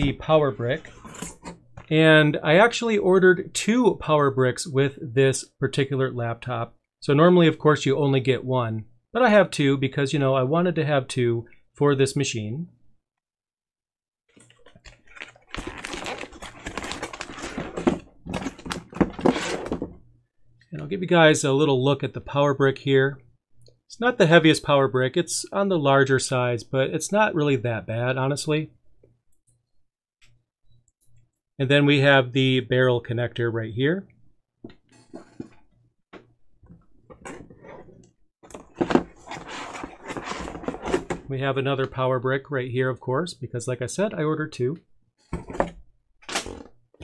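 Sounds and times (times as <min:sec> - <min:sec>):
plastic film crinkling: 0:14.5 - 0:19.5.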